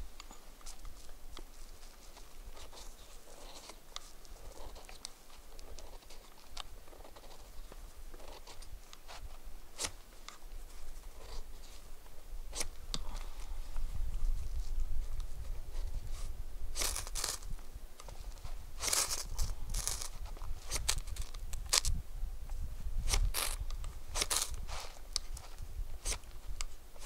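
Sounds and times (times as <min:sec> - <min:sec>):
wood fire crackling: 0:16.7 - 0:21.9.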